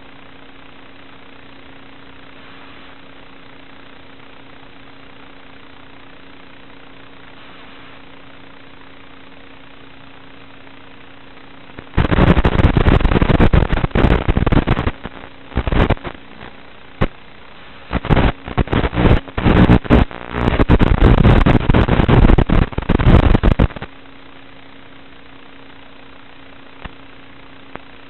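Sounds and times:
faint hum: 0.0 - 28.0
transmission hiss: 2.3 - 3.1, 7.2 - 8.1, 11.8 - 23.9.

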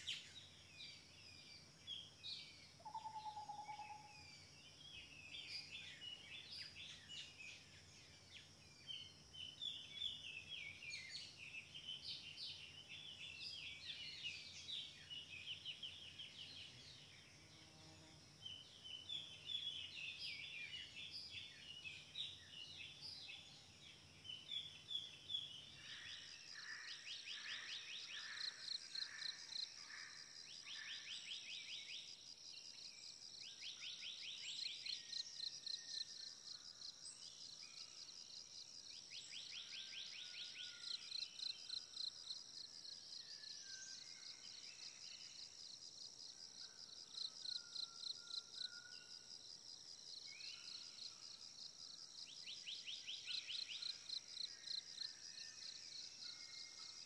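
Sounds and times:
faint whistled bird calls: 2.8 - 4.2.

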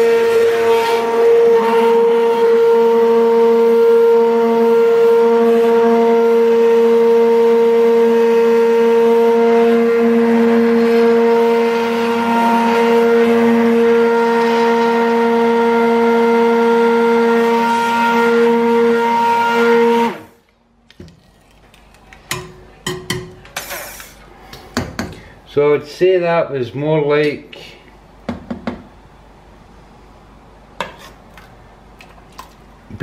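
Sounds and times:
stick blender motor whine: 0.0 - 20.4
churning hiss: 23.6 - 24.3.

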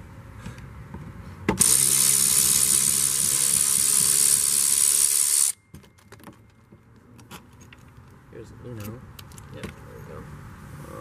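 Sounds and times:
cordless drill running: 1.6 - 5.6.

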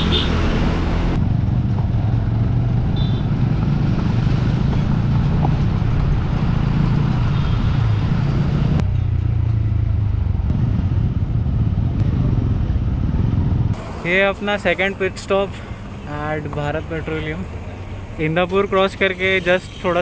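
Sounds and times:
wind noise: 0.0 - 13.8
motorcycle engine running: 1.1 - 13.8.

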